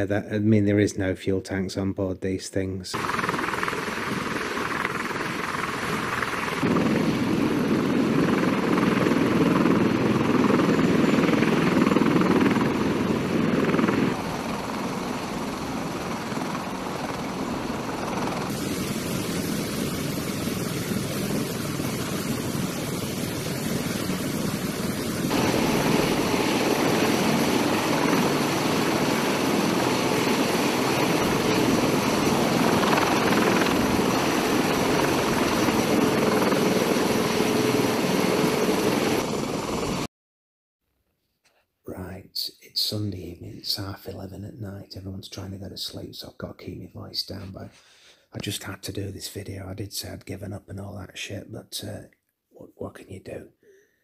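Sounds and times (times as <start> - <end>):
helicopter rotor and turbine: 3.0 - 40.1.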